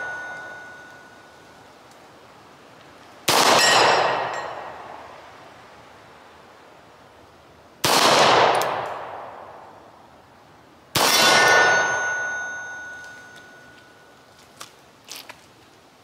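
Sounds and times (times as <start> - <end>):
steel target ringing: 0.0 - 1.6, 3.4 - 5.0, 11.0 - 14.2
pistol shots echoing: 3.3 - 4.9, 7.8 - 9.6, 10.9 - 12.0.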